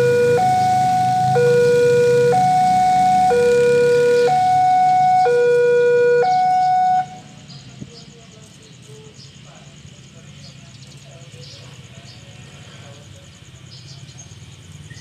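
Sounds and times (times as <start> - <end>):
level crossing two-tone alarm: 0.0 - 7.3.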